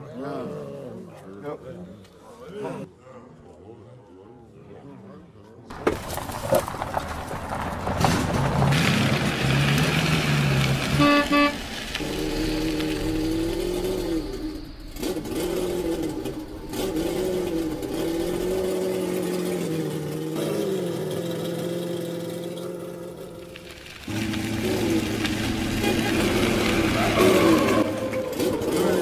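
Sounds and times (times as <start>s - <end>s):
car engine running: 5.7s - 29.0s
car horn toots: 9.8s - 19.3s, 24.1s - 29.0s.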